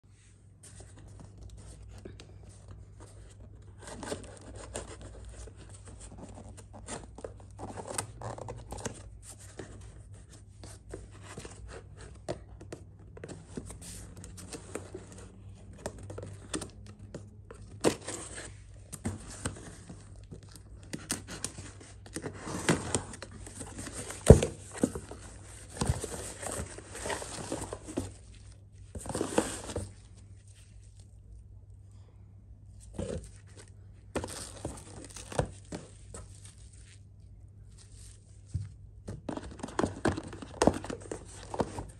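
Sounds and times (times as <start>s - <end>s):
cardboard tearing and rustling: 17.7s - 30.0s.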